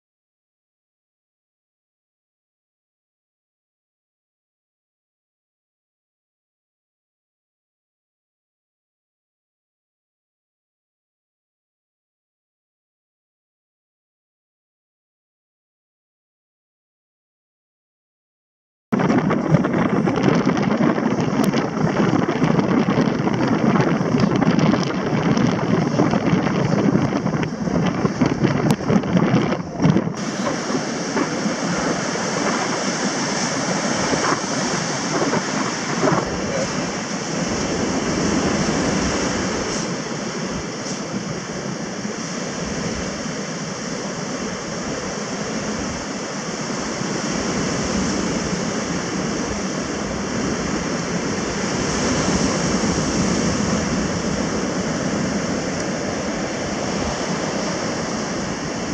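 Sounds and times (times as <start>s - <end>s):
surf breaking on beach: 19.0s - 58.9s
wind buffeting microphone: 19.0s - 58.9s.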